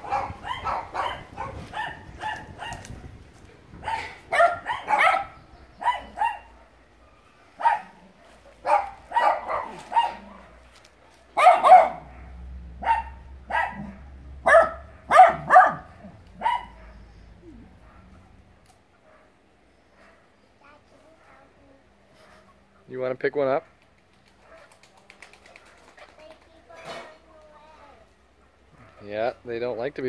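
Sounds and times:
dogs barking: 0:00.0 - 0:03.2, 0:03.8 - 0:20.4, 0:21.1 - 0:21.6, 0:24.4 - 0:24.8, 0:28.3 - 0:29.1.

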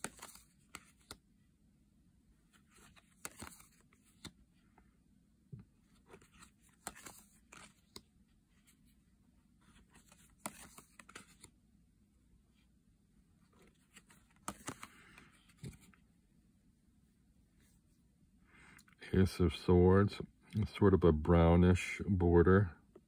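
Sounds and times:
cards sliding and clicking: 0:00.0 - 0:01.2, 0:02.5 - 0:04.4, 0:05.9 - 0:08.9, 0:09.6 - 0:11.6, 0:13.4 - 0:16.0.

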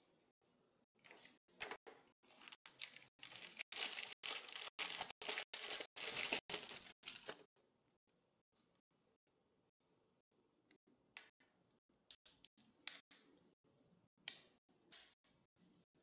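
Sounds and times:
plastic bag crinkling: 0:02.4 - 0:07.4.

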